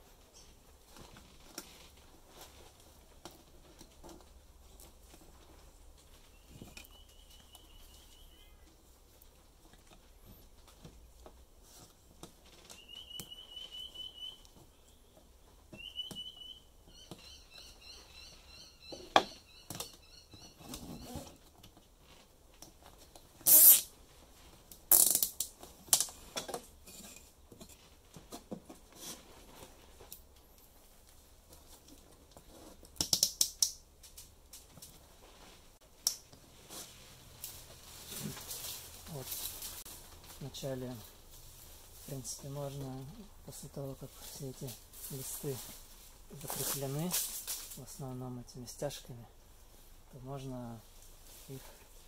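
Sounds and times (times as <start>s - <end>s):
cable ties zipping: 23.4s - 23.9s, 24.9s - 25.5s
clicks and knocks of handling plywood: 25.4s - 30.4s.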